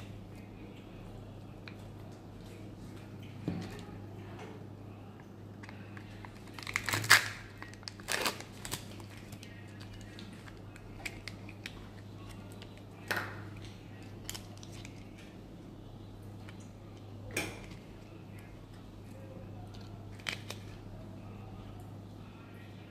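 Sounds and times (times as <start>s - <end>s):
foil lid crackling: 6.3s - 10.2s.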